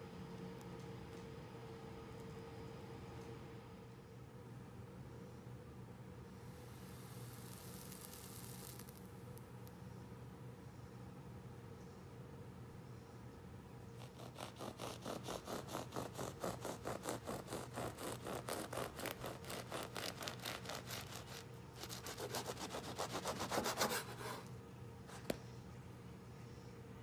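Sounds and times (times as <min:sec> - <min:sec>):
bread knife sawing through loaf: 0:14.0 - 0:24.5.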